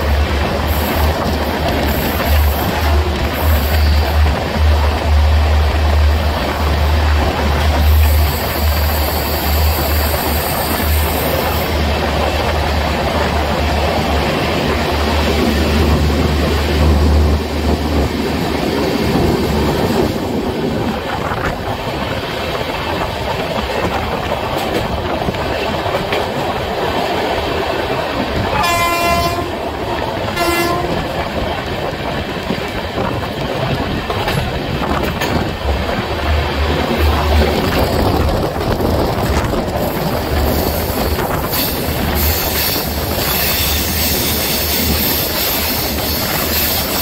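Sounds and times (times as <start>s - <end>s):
train wheels clattering on track: 0.0s - 47.0s
wind: 0.0s - 47.0s
train horn blasts: 28.5s - 29.7s, 30.3s - 31.1s.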